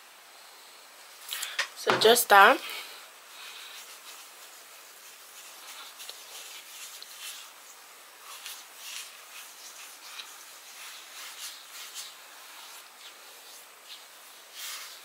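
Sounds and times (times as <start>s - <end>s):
fingertips rubbing skin: 3.5s - 15.0s.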